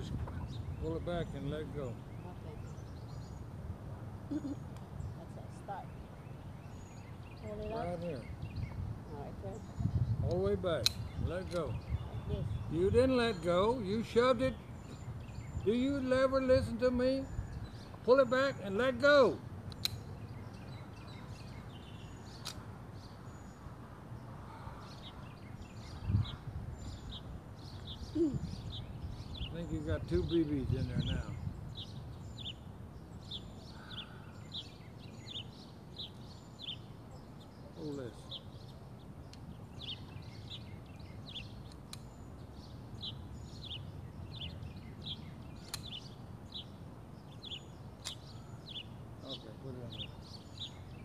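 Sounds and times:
small birds chirping: 0.0 - 51.0
sharp click: 10.3 - 11.7, 19.7 - 20.1, 22.4 - 22.6, 41.6 - 42.1, 45.6 - 46.0, 48.0 - 48.3.

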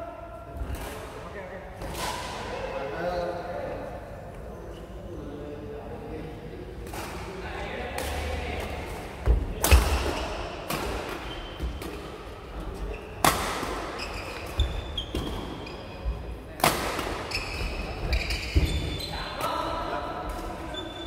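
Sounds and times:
racket hitting shuttlecock: 9.6 - 12.1
shoe squeaks: 11.2 - 11.8, 12.8 - 13.2, 14.0 - 16.1, 17.3 - 19.3, 20.7 - 21.0.

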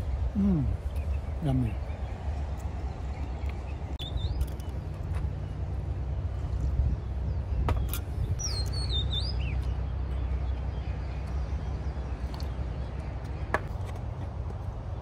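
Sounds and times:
low outdoor rumble: 0.0 - 15.0
bird whistled call: 8.4 - 9.6.

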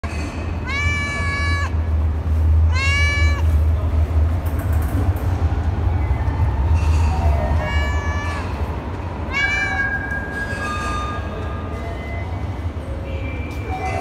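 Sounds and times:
cat meowing: 0.6 - 1.8, 2.7 - 3.6, 7.5 - 8.6, 9.3 - 10.0.

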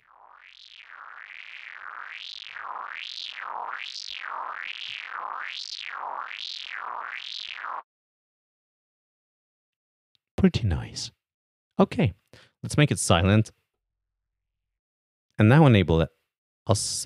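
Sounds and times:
synthesizer filter sweep: 0.0 - 7.8.

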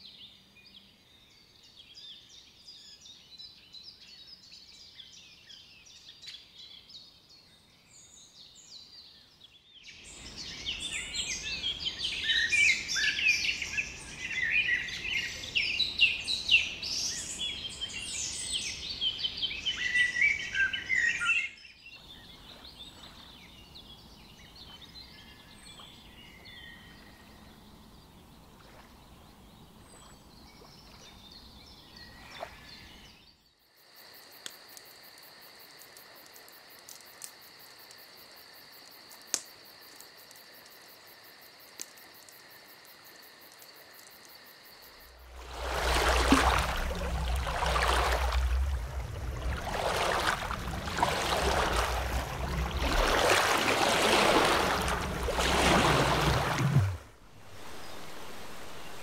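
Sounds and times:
songbirds chirping: 0.0 - 33.6, 40.0 - 59.0
crickets chirping: 32.0 - 59.0.

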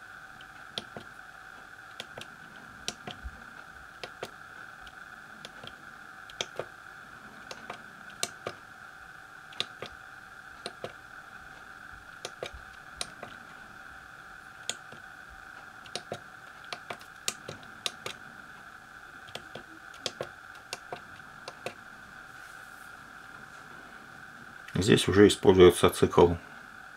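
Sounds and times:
high background hum: 0.0 - 26.9
calculator keys clicking: 0.8 - 1.1, 4.0 - 4.4, 5.4 - 6.7, 12.2 - 13.3, 15.8 - 18.2, 19.3 - 21.8.

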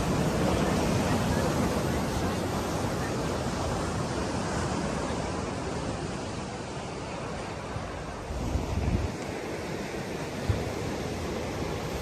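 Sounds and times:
sea surf breaking on shore: 0.0 - 12.0
wind: 0.0 - 12.0.

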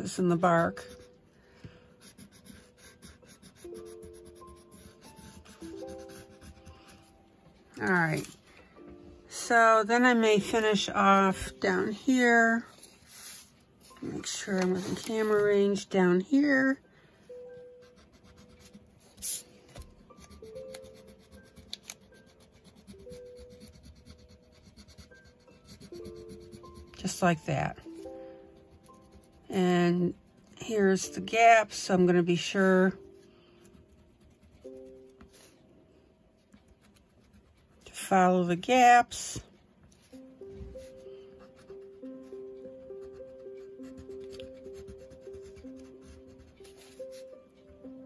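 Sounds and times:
soft background music: 0.0 - 48.0
pencil scratching on paper: 0.1 - 1.3, 2.0 - 7.1, 12.8 - 15.9, 17.6 - 31.8, 33.6 - 35.5, 36.6 - 39.0, 40.0 - 47.3.

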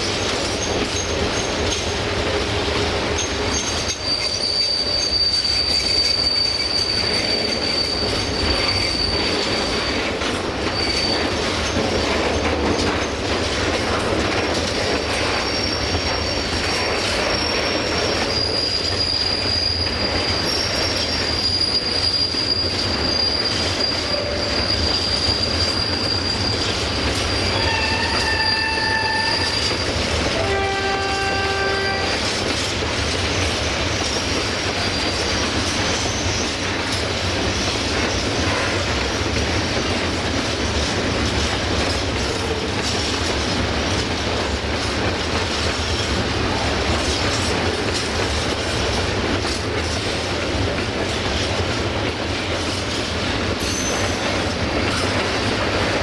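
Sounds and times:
train wheels rumbling and rattling: 0.0 - 56.0
train wheels squealing: 0.0 - 56.0
train horn: 27.5 - 32.4, 38.4 - 38.9.

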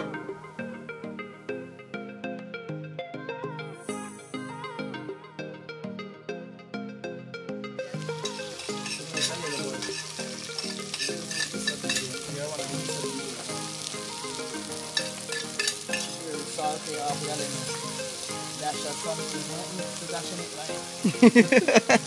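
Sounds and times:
vegetables sizzling in oil: 7.8 - 22.0
spoon clicking against pot: 8.2 - 12.1, 15.0 - 16.2.

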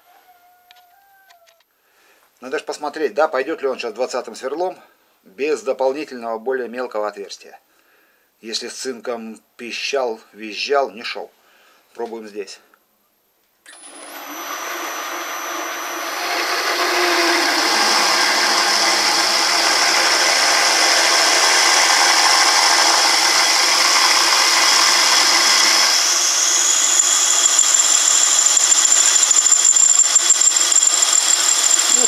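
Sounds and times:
drill squeaking: 13.7 - 32.0
lathe drill cutting aluminium: 13.7 - 32.0.

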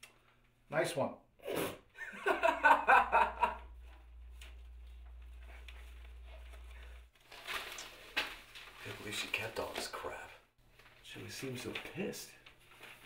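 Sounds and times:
man laughing: 2.0 - 3.7.

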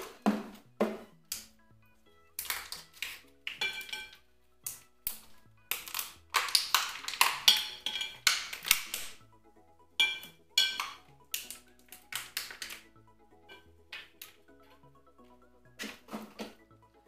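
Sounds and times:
quiet background music: 0.0 - 17.0
rustling and clicking of small items: 2.3 - 9.2, 10.0 - 12.9, 13.5 - 16.6.

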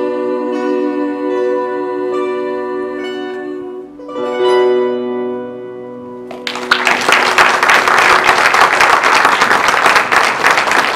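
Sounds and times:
audience applause: 6.3 - 10.9.

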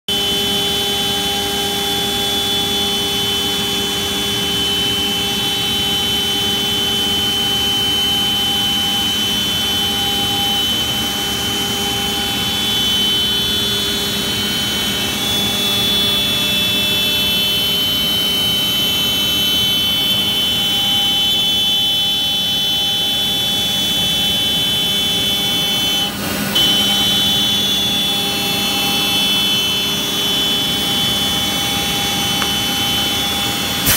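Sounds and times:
router spindle high-pitched whine: 0.1 - 33.9.

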